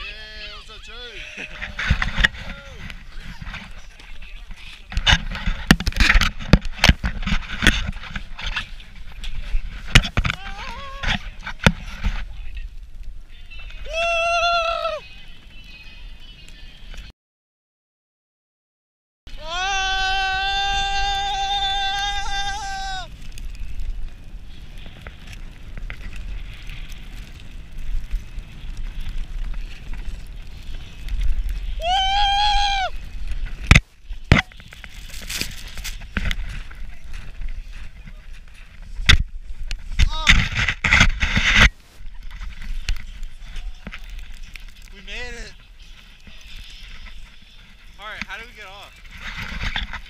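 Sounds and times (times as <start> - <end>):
snow tube sliding on snow: 0.0 - 17.1, 19.3 - 50.0
person yelling: 13.8 - 15.0, 19.4 - 23.1, 31.8 - 32.9
wind buffeting microphone: 19.3 - 50.0.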